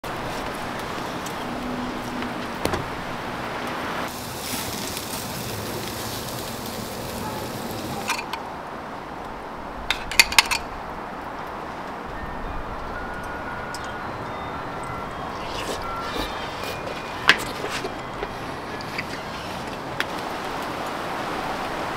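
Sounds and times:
food sizzling on fire: 0:04.0 - 0:08.4, 0:15.2 - 0:21.9.

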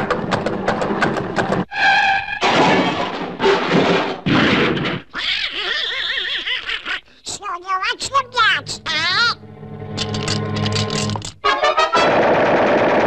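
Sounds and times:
raspy cartoon duck voice squawking: 0:05.1 - 0:09.4.

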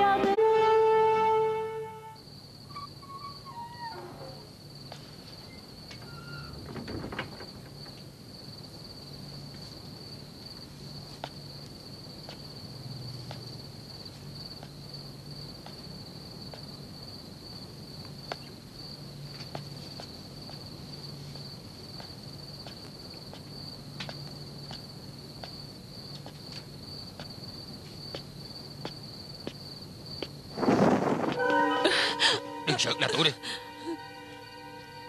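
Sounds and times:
crickets trilling: 0:01.6 - 0:35.0.

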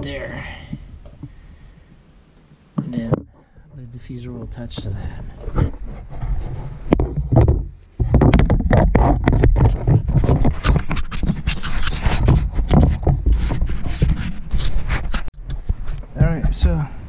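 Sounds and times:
camera scraping on concrete floor: 0:04.8 - 0:16.2.

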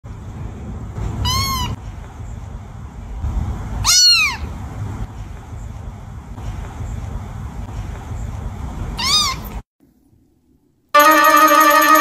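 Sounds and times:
low steady rumble: 0:00.1 - 0:12.0
kitten meowing: 0:09.0 - 0:09.5.

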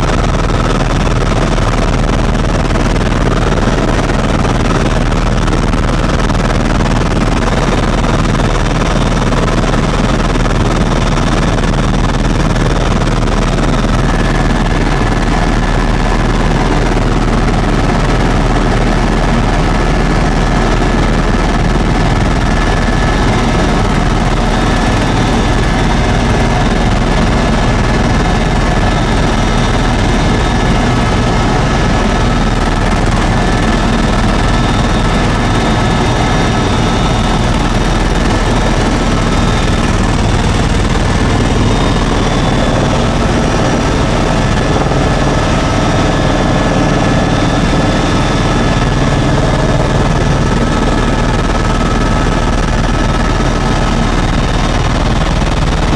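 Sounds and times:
helicopter turbine and rotor: 0:00.0 - 0:55.9.

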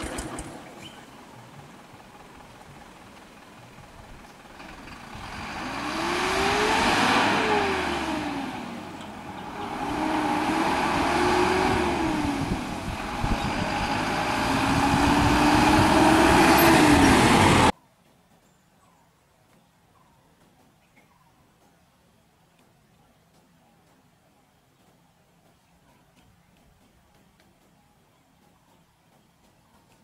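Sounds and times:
motor vehicles passing: 0:00.0 - 0:17.7.

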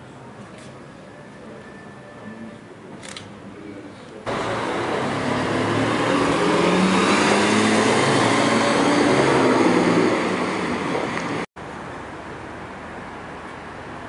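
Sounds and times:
car engine driving away: 0:04.3 - 0:11.4.

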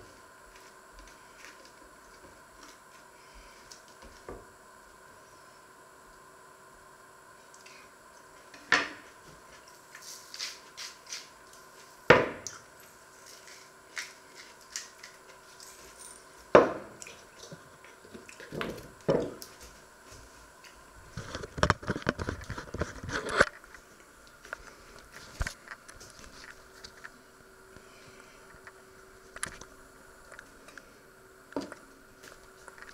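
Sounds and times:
pepper mill grinding: 0:09.9 - 0:11.7, 0:12.8 - 0:16.4.

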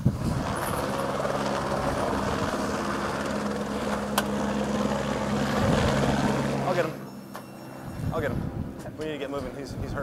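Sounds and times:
low engine drone: 0:00.0 - 0:09.0.

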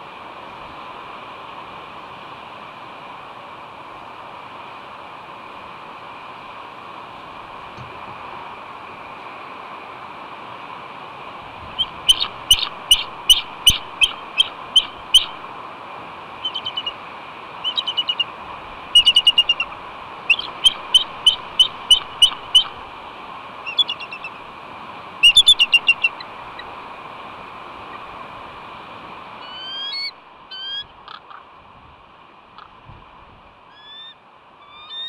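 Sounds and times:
steady hiss: 0:00.0 - 0:35.0
eagle piping chattering calls: 0:11.8 - 0:15.4, 0:16.4 - 0:17.0, 0:17.6 - 0:18.3, 0:18.9 - 0:22.8, 0:23.6 - 0:24.4, 0:25.2 - 0:26.7, 0:29.4 - 0:31.4, 0:33.7 - 0:35.0.

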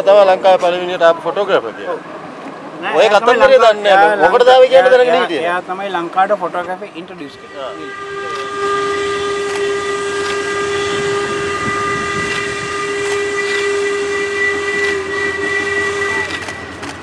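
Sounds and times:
steam locomotive whistle blast: 0:07.5 - 0:16.8.

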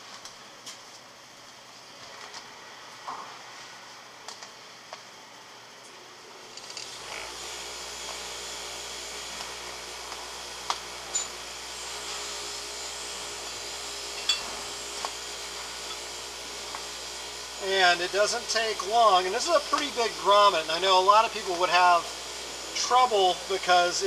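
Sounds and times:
machine humming: 0:06.6 - 0:24.0.

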